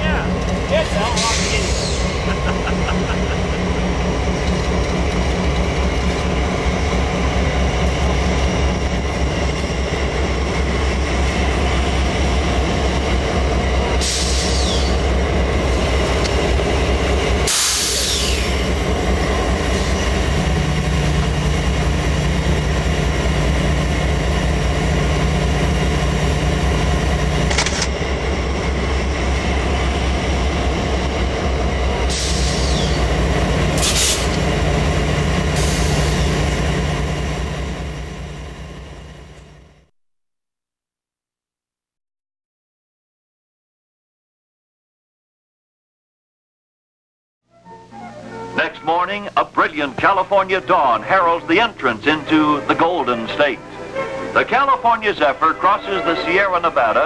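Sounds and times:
diesel locomotive engine idling: 0.0s - 39.8s.

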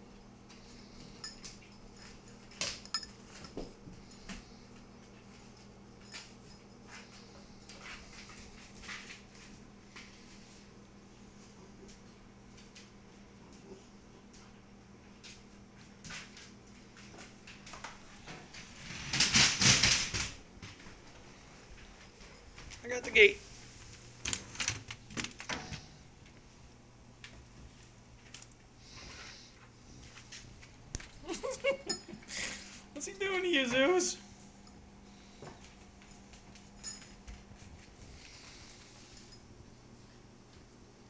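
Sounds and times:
dogs scrabbling and scuffling: 15.2s - 22.8s.

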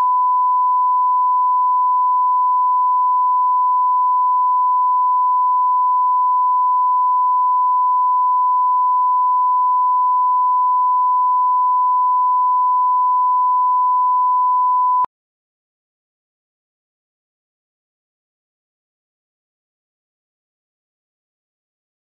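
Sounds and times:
steady sine tone: 0.0s - 15.1s.

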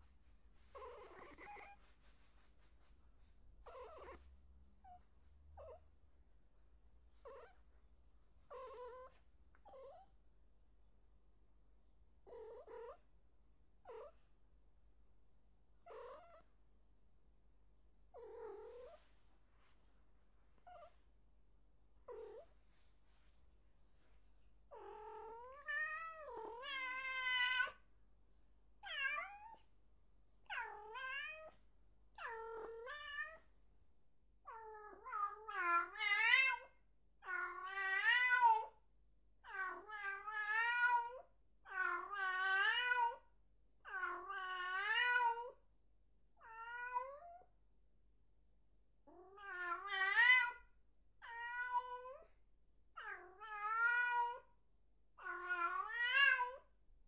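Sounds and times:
cat meowing: 24.7s - 27.8s, 28.8s - 29.6s, 51.2s - 52.3s, 53.0s - 54.5s.

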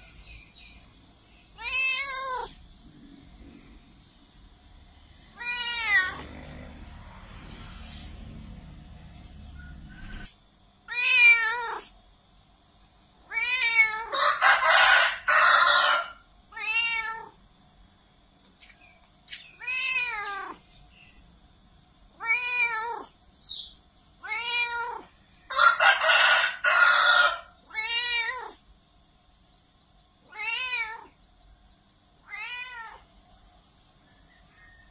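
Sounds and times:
cat meowing: 1.6s - 2.6s, 5.4s - 6.3s, 10.9s - 11.9s, 13.2s - 14.2s, 16.5s - 17.4s, 19.6s - 20.6s, 22.2s - 23.1s, 24.2s - 25.1s, 27.6s - 28.6s, 30.2s - 31.2s, 32.2s - 33.1s.

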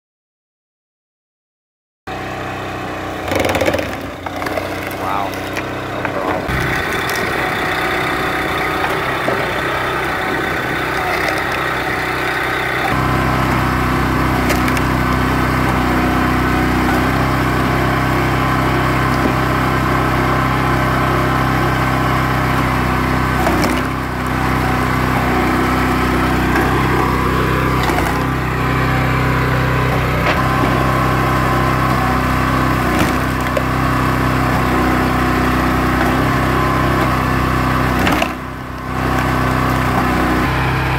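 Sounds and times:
small gas engine running: 2.1s - 40.9s
logs cracking as they split: 3.3s - 12.9s, 14.4s - 14.9s, 26.6s - 28.4s.

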